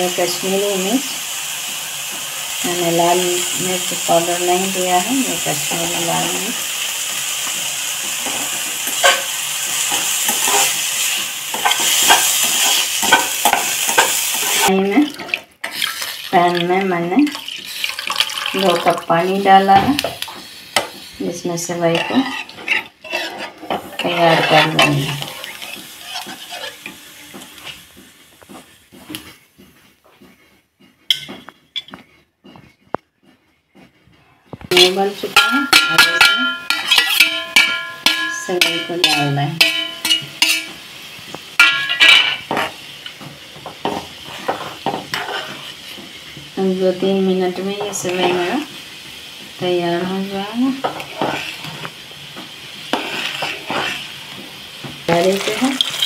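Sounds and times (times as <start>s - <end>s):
vegetables sizzling in a pan: 0.0s - 29.5s, 34.7s - 56.0s
spatula scraping and tapping pan: 7.4s - 18.2s, 19.6s - 21.1s, 21.7s - 46.6s, 47.5s - 49.5s, 50.2s - 56.0s
spatula stirring in water: 11.5s - 18.9s, 21.9s - 27.0s, 43.8s - 46.0s, 50.8s - 51.9s, 52.9s - 54.2s
spatula clinking on steel plate: 34.8s - 40.8s, 41.6s - 42.4s.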